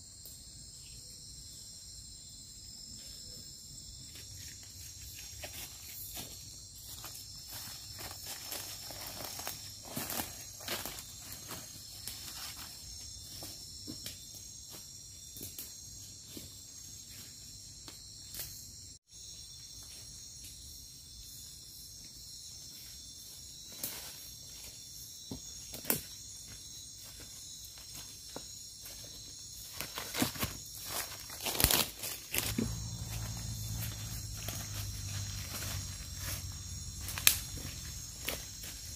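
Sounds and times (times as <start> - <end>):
night insects chorus: 0.0 - 38.9
footsteps crunching through leaf litter: 4.2 - 14.0, 27.1 - 38.9.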